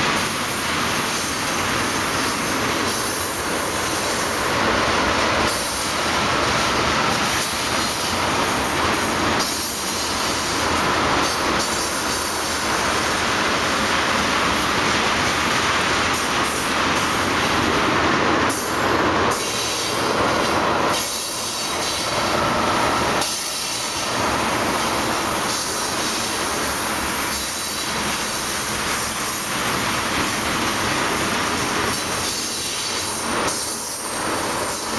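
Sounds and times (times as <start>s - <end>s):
train wheels on rails: 0.0s - 34.9s.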